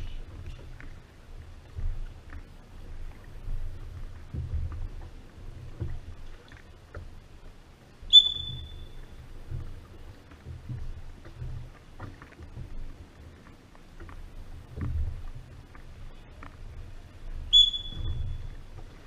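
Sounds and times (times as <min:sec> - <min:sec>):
oar strokes in water: 0:00.0 - 0:19.0
short high whistle-like tone: 0:08.1 - 0:08.9, 0:17.5 - 0:18.4
low rumble: 0:14.1 - 0:19.0.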